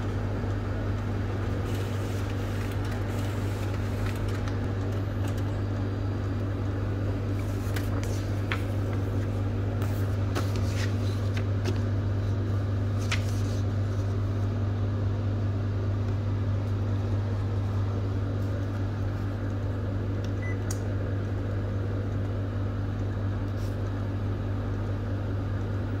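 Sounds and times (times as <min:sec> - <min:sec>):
printer humming: 0:00.0 - 0:20.2.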